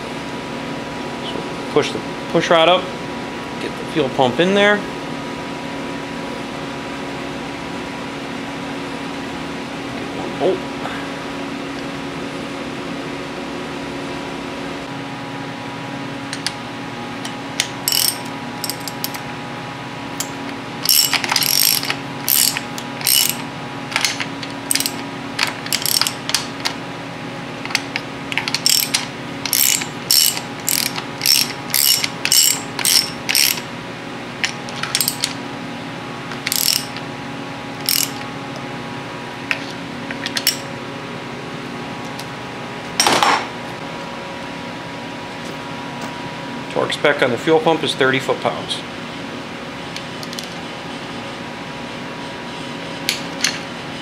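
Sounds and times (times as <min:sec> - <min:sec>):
ratchet pawl clicking: 0:17.8 - 0:19.2, 0:20.8 - 0:23.4, 0:24.0 - 0:26.5, 0:27.7 - 0:33.6, 0:36.5 - 0:37.0, 0:37.8 - 0:38.2.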